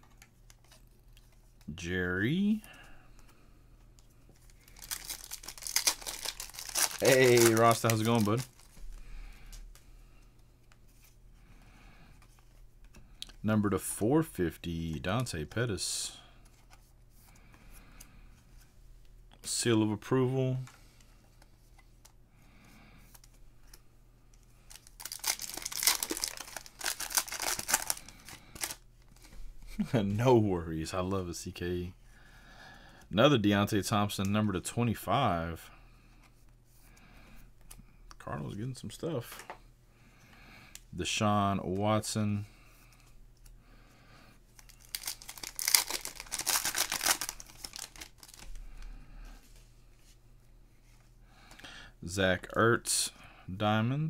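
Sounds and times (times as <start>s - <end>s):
cards rustling: 2.5s - 11.2s, 23.0s - 30.0s, 44.5s - 50.2s
plastic crinkling: 4.4s - 9.0s, 24.7s - 29.2s, 44.6s - 48.6s.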